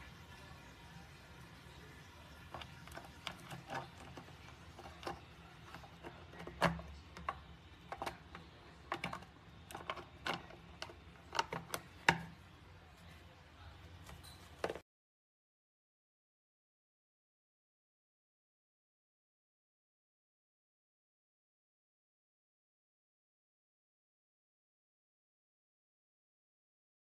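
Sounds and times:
plastic soap pump clicking: 2.5s - 12.4s.

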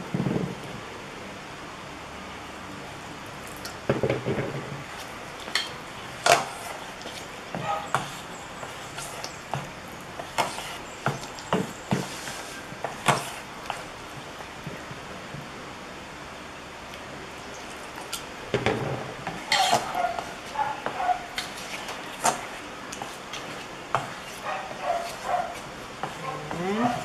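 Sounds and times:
metal spoon scraping bowl: 19.4s - 20.3s.

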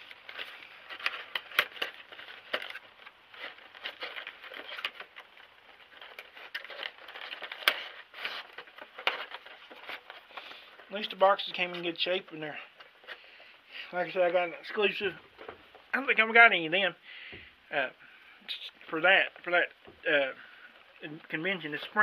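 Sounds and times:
plastic packaging crinkling: 0.0s - 16.4s.

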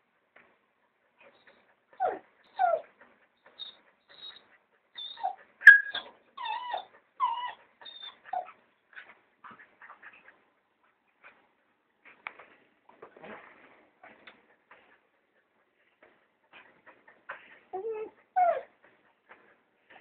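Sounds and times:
dog whining and yipping: 1.3s - 2.9s, 3.5s - 8.6s, 17.7s - 18.7s.

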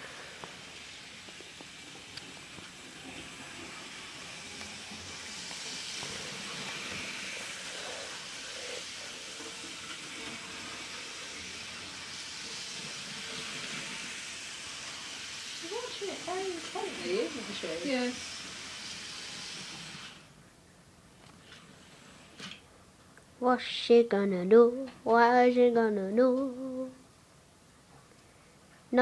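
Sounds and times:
model train motor whirring: 0.0s - 20.3s.

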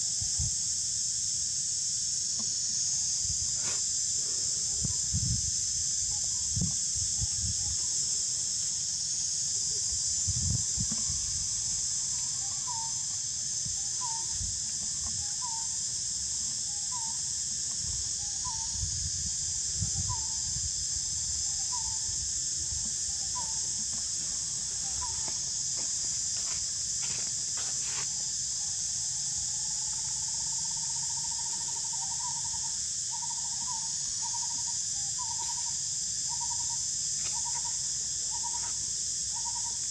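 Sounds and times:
high-pitched insect drone: 0.0s - 39.9s.

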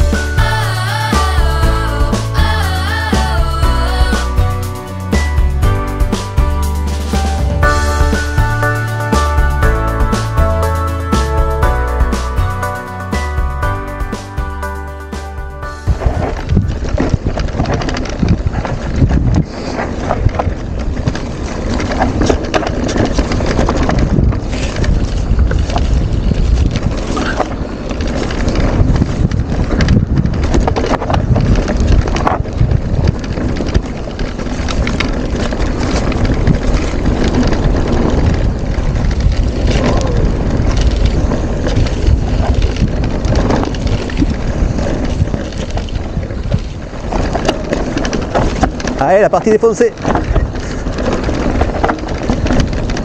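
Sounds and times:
tyre noise on dirt trail: 0.0s - 53.0s
wind buffeting microphone: 15.6s - 53.0s
bike knocks and rattles: 15.9s - 53.0s.

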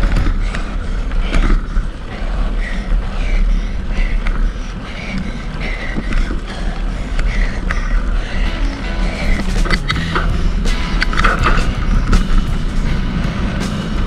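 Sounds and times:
bike knocking over bumps: 0.0s - 2.0s, 9.3s - 14.0s
tyres rumbling on dirt: 0.0s - 14.0s.

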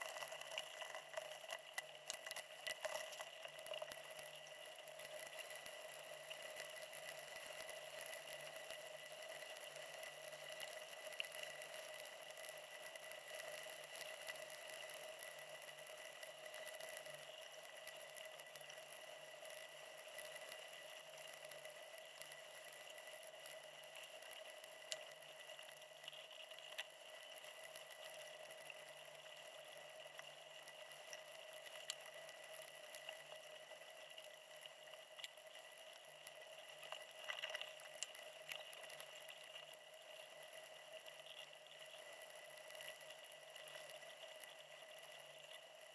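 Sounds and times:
faint steady hiss and hum: 0.0s - 45.9s
faint ticks: 0.0s - 45.9s.

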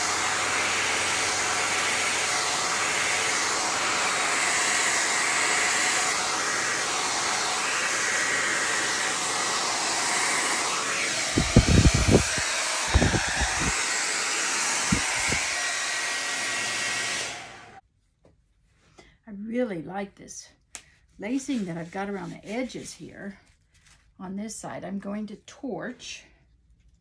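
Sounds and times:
hair dryer blowing air: 0.0s - 17.8s.

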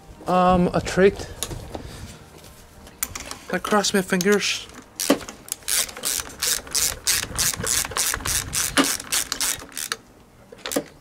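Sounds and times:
socket ratchet clicking: 5.0s - 10.1s.

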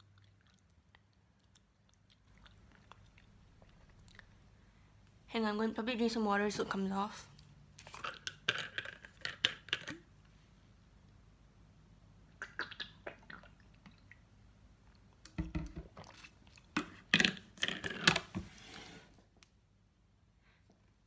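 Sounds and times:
person sipping and swallowing water: 12.3s - 14.2s, 15.8s - 16.8s.

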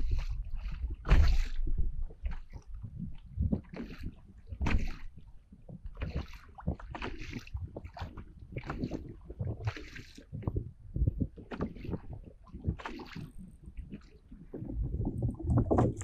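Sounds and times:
waves splashing against kayak hull: 0.0s - 16.0s
wind buffeting microphone: 5.7s - 16.0s.

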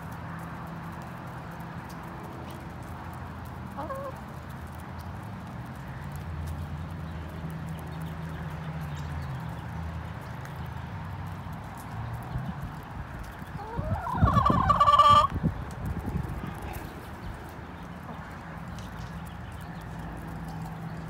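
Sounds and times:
hens pecking at feed: 0.0s - 21.0s
low murmur of hens: 1.9s - 4.8s, 11.7s - 21.0s.

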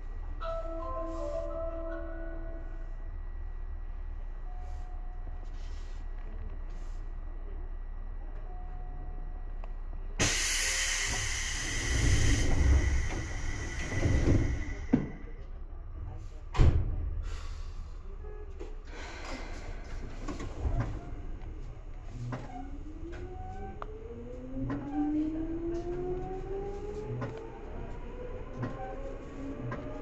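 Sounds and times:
compressed air hissing: 10.2s - 14.8s.

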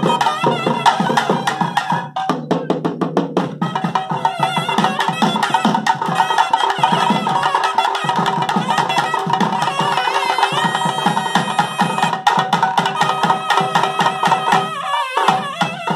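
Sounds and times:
double-reed horn melody: 3.6s - 15.9s.

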